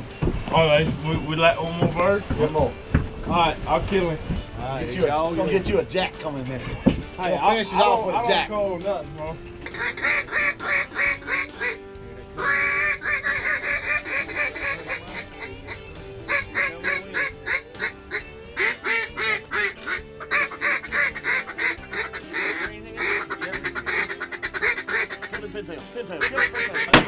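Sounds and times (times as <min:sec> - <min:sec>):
background music: 0:00.0 - 0:27.0
duck quacking: 0:09.6 - 0:11.8, 0:12.4 - 0:25.5, 0:26.1 - 0:27.0.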